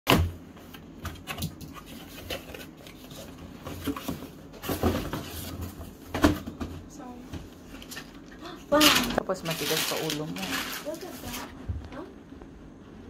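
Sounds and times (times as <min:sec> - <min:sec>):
cardboard scraping and rustling: 0:01.1 - 0:06.4.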